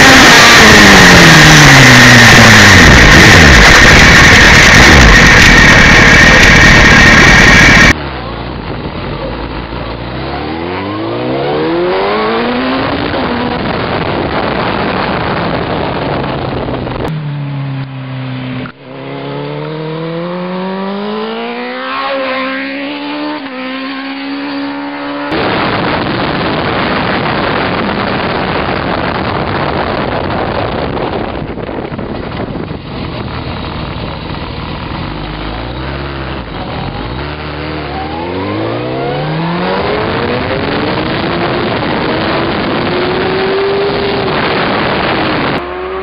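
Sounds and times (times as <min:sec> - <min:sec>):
wind rush on microphone: 0:00.0 - 0:09.1, 0:12.4 - 0:17.2, 0:25.3 - 0:35.1, 0:39.2 - 0:46.0
motorcycle engine accelerating: 0:00.0 - 0:46.0
sportbike revving past: 0:10.1 - 0:15.1, 0:17.2 - 0:28.5, 0:33.9 - 0:46.0.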